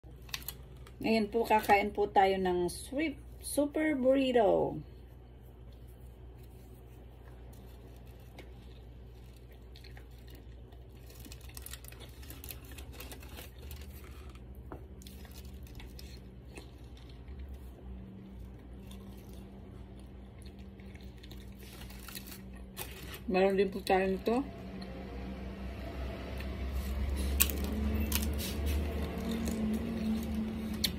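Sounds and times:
faint low hum: 0.0 - 30.9
person chewing food: 5.4 - 23.1, 26.2 - 30.9.

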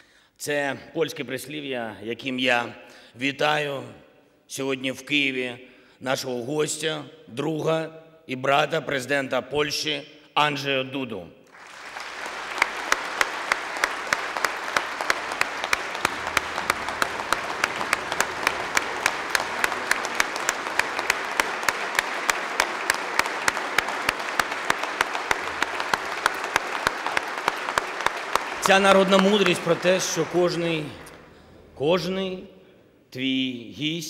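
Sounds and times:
crowd applauding in unison: 11.5 - 31.4.

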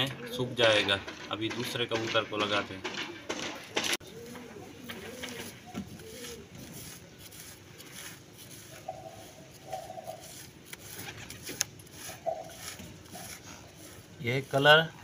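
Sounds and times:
pigeon cooing: 4.0 - 6.6, 8.8 - 10.4, 12.1 - 13.8
soft rustles: 4.0 - 15.0.

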